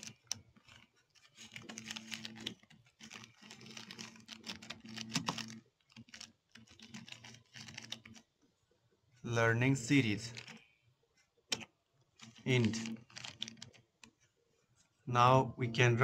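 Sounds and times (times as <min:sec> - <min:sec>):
computer keyboard typing: 0:00.0 - 0:08.3, 0:09.9 - 0:10.6, 0:11.5 - 0:14.2.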